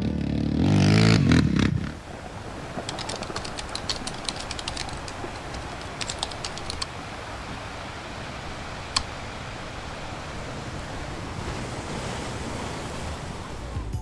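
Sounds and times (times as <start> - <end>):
keyboard typing clicks: 2.9 - 6.9
music: 13.8 - 14.0.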